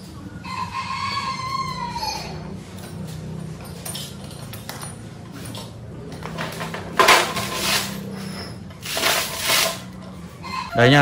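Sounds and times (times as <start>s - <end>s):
metal clatter: 2.9s - 10.0s
steel parts clanking: 6.2s - 10.0s.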